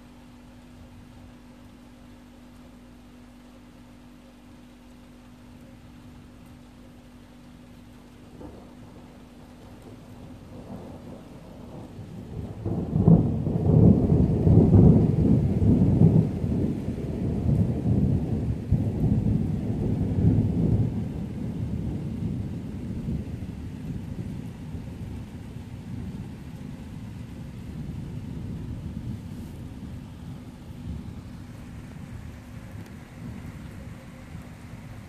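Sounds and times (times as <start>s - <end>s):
thunder rumbling: 8.0s - 35.0s.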